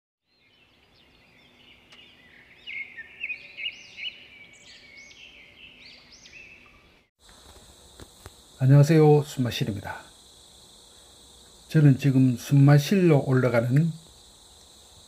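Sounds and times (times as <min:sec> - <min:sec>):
birds chirping: 0:00.2 - 0:07.1
crickets shrilling: 0:07.2 - 0:15.0.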